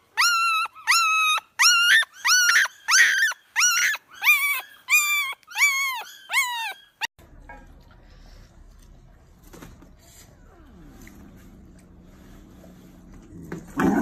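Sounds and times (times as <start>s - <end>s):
dog whining yelps: 0.0s - 7.1s.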